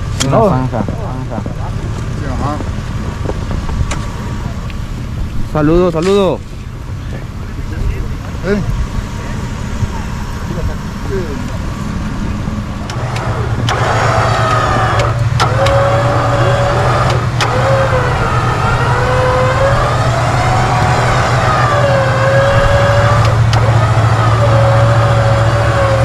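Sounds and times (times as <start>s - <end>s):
vehicle engines running: 0.0s - 26.0s
wavering whine: 0.1s - 26.0s
sharp clicks: 12.8s - 16.2s, 16.8s - 17.9s, 23.0s - 23.8s.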